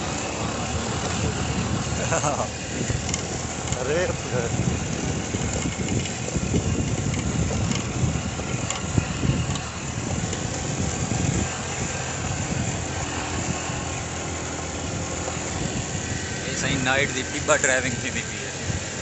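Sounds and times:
motorcycle engine and road noise: 0:00.0 - 0:19.0.

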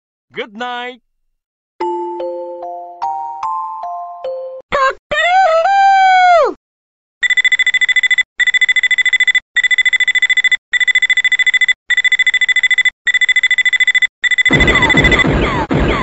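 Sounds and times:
alarm clock rapid beeping: 0:07.2 - 0:16.0.

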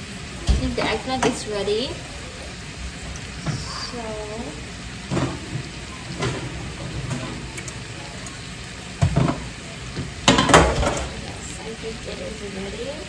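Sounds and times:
shrimp sizzling in a pan: 0:00.0 - 0:13.0
baking sheet clanking: 0:10.2 - 0:11.1.

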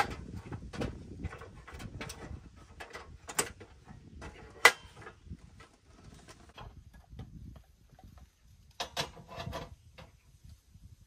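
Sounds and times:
metal camp stove clicks and knocks: 0:00.0 - 0:05.7, 0:08.7 - 0:10.2.

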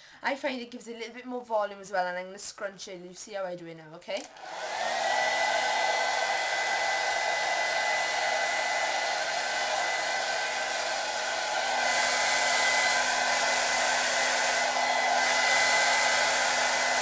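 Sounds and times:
hair dryer blowing air: 0:04.2 - 0:17.0.

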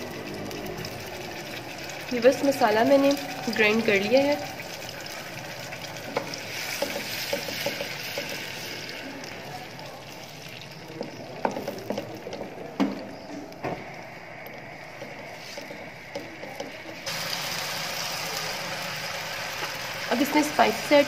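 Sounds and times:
paste sizzling in hot oil: 0:00.2 - 0:13.2, 0:13.8 - 0:21.0
spatula knocking on pan: 0:06.2 - 0:08.4.

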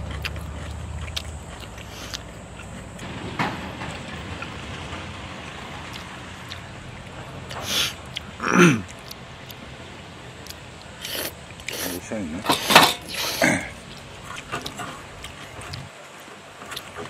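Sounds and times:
soft eating noises: 0:00.0 - 0:03.0, 0:05.6 - 0:17.0
steady background hiss: 0:00.0 - 0:17.0
mouth noise: 0:07.5 - 0:09.2, 0:11.0 - 0:14.0.

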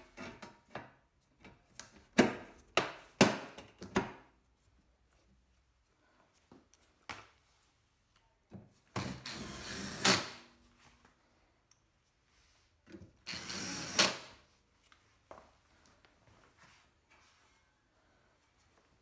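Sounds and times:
power drill driving screws: 0:09.0 - 0:10.4, 0:13.2 - 0:14.3.

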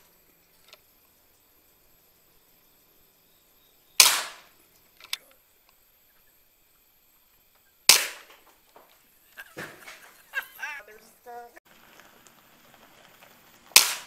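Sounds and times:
air rifle shots: 0:04.0 - 0:04.6, 0:07.9 - 0:08.4, 0:13.7 - 0:14.0.

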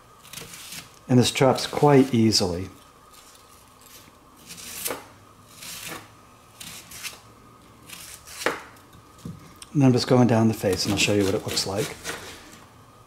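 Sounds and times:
knife slicing through onion: 0:00.2 - 0:07.2, 0:07.8 - 0:08.8, 0:10.5 - 0:12.6.

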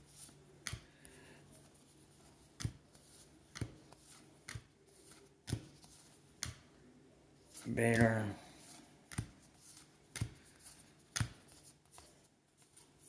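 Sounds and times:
cards flicked by hand: 0:02.6 - 0:06.7, 0:09.1 - 0:12.1.

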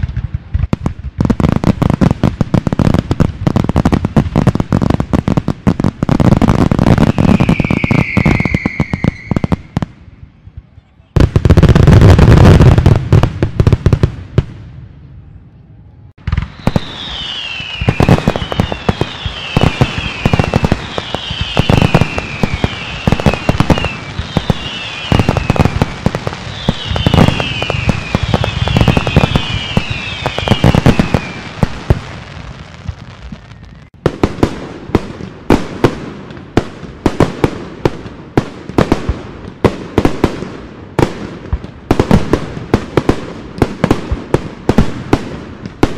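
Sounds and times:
fireworks heavy bangs: 0:00.0 - 0:14.9, 0:16.2 - 0:45.9
fireworks dense crackling: 0:00.0 - 0:15.4, 0:16.0 - 0:45.9
falling fireworks whistles: 0:03.8 - 0:13.0, 0:16.2 - 0:34.4.

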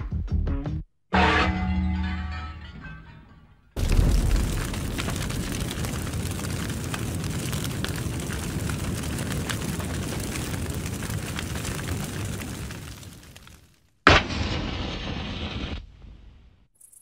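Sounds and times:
fire crackling: 0:03.8 - 0:16.5
fire rushing: 0:03.8 - 0:16.5.

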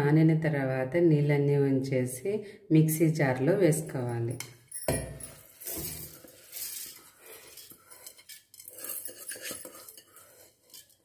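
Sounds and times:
metal clinking against metal: 0:04.3 - 0:11.0
rice scraped from metal bowl: 0:05.6 - 0:11.0.

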